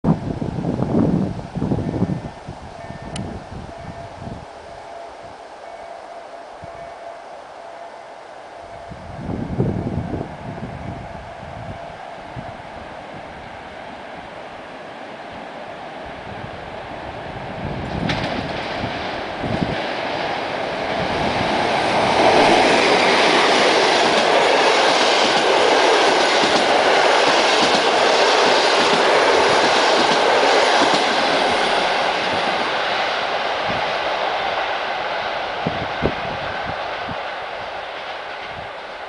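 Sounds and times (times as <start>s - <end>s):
train passing at speed: 0.1s - 39.0s
train wheels running over track: 8.6s - 39.0s.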